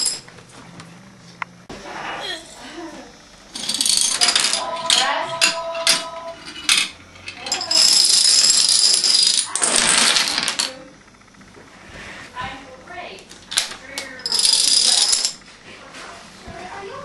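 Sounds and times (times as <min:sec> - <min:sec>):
dominoes toppling clatter: 0:03.6 - 0:06.9, 0:07.5 - 0:10.7, 0:13.5 - 0:15.4.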